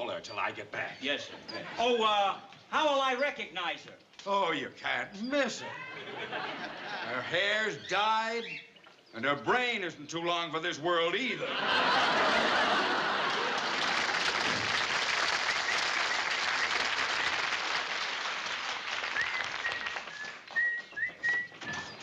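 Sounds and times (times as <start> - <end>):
caged birds chirping: 0.0 - 11.4, 19.1 - 22.0
audience laughing: 1.2 - 2.0, 5.7 - 7.5, 11.4 - 14.9
studio audience applauding: 11.9 - 22.0.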